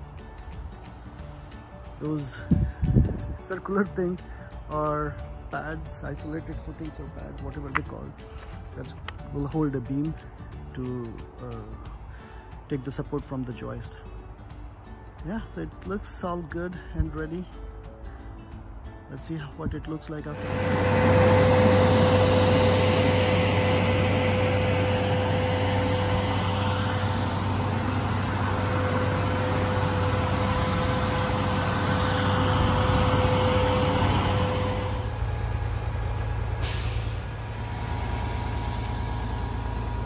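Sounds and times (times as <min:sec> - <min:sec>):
diesel engine running with whine: 0:20.2 - 0:40.0
short hiss: 0:36.6 - 0:37.4.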